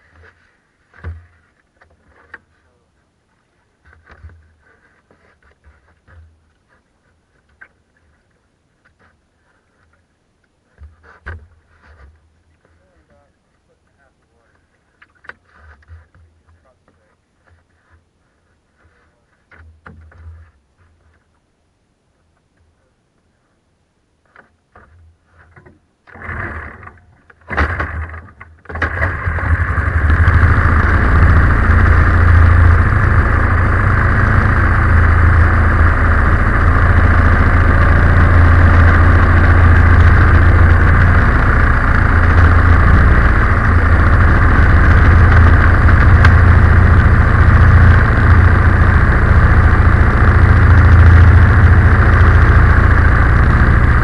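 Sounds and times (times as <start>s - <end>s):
engine cranking: 26.0s - 54.0s
engine idling: 26.1s - 54.0s.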